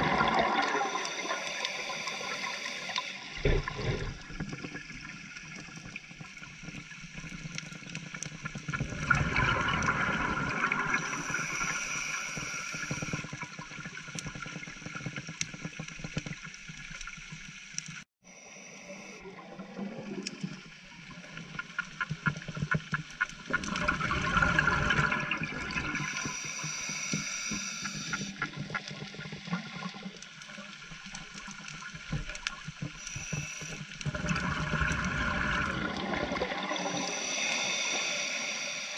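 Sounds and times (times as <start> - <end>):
exhaled bubbles gurgling: 0.0 - 16.2, 19.0 - 38.9
air hissing through regulator: 0.6 - 3.7, 10.9 - 13.3, 25.9 - 28.4, 33.0 - 34.0, 36.7 - 38.9.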